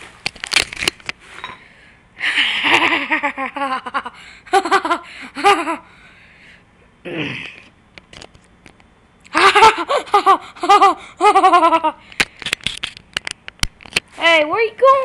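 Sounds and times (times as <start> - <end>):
person giggling and laughing: 2.2 - 5.9, 9.3 - 12.0.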